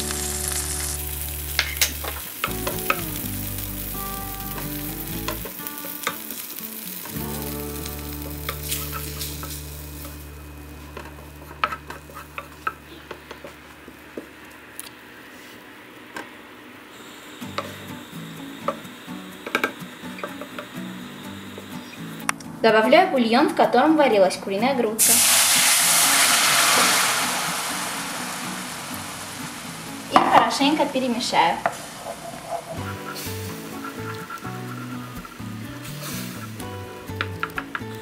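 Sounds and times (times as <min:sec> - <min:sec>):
flour sizzling in butter: 0:00.0 - 0:12.7, 0:25.0 - 0:38.0.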